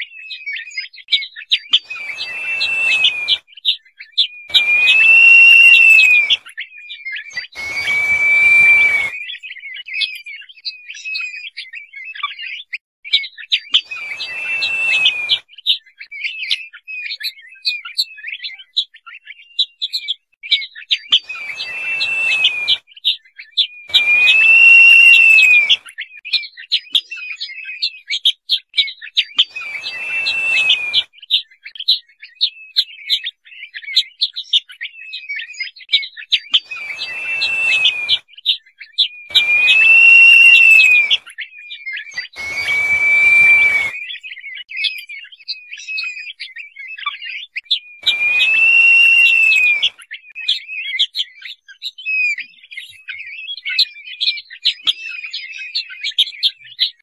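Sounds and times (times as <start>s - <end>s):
bird whistled call: 0.0s - 10.1s, 13.1s - 18.6s, 20.5s - 26.3s, 29.3s - 31.4s, 36.4s - 51.2s
short high chirps: 23.9s - 25.8s, 29.5s - 31.0s, 36.7s - 38.2s, 39.3s - 41.2s, 48.0s - 49.9s.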